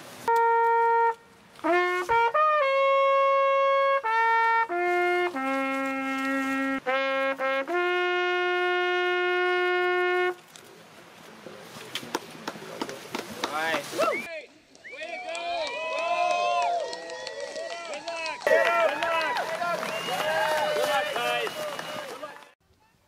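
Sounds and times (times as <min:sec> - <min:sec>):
bugle playing a call: 0:00.2 - 0:10.4.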